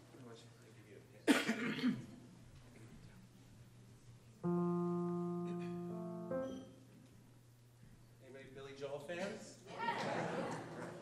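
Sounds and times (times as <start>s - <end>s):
piano chord ringing: 4.4s - 7.0s.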